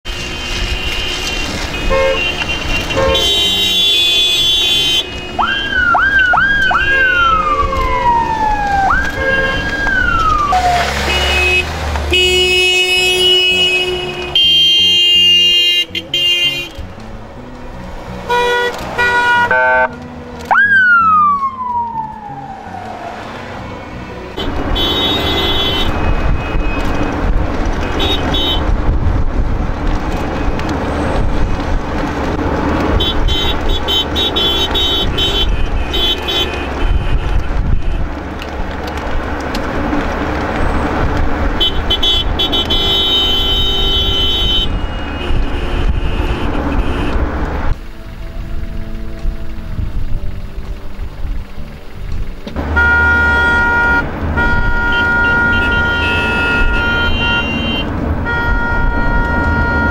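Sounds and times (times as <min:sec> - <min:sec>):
car horns honking: 0:00.0 - 0:08.1, 0:09.0 - 0:16.9, 0:18.2 - 0:20.0, 0:23.2 - 0:28.8, 0:32.9 - 0:38.2, 0:41.5 - 0:47.4, 0:52.5 - 0:59.9
traffic rumble: 0:00.0 - 0:59.9
siren whooping: 0:05.4 - 0:11.2, 0:20.5 - 0:23.5.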